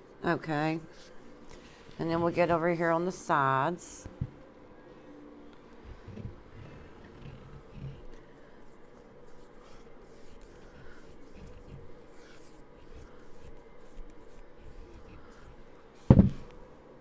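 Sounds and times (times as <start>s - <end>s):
scratchy paintbrush strokes: 5.8s - 16.5s.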